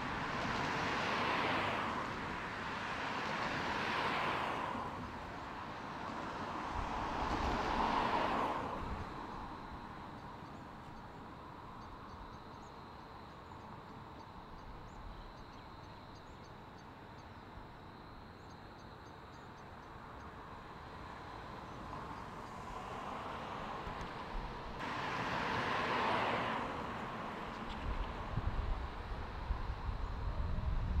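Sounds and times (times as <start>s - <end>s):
road vehicle passing: 0.0s - 10.4s, 20.4s - 31.0s.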